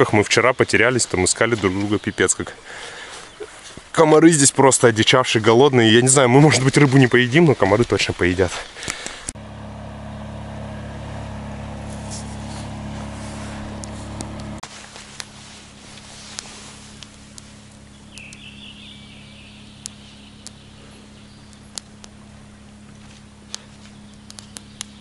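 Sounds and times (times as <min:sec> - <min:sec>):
motor droning: 0:08.8 - 0:25.0
light clicks: 0:13.6 - 0:14.6, 0:16.3 - 0:18.6, 0:19.7 - 0:22.2, 0:22.8 - 0:25.0
bird call: 0:17.8 - 0:22.0, 0:23.5 - 0:25.0.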